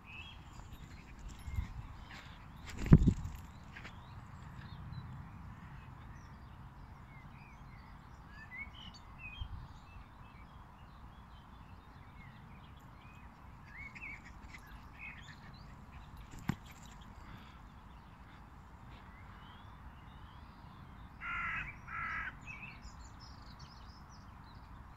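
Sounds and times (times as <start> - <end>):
small birds chirping: 0.0 - 5.0, 11.0 - 21.1.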